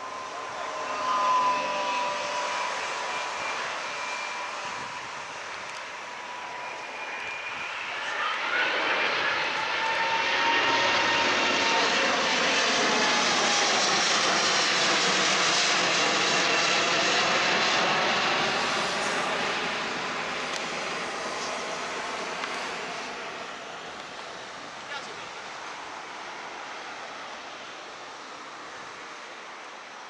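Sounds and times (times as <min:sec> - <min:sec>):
whining fan tones: 0:00.0 - 0:12.3
jet airliner passing overhead: 0:00.0 - 0:30.0.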